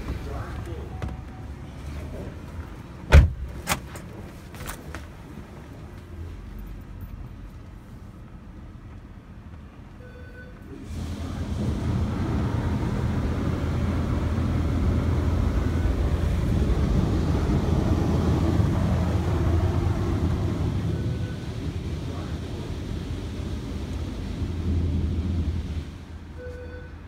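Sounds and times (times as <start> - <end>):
car wash machinery rushing: 10.7 - 26.6.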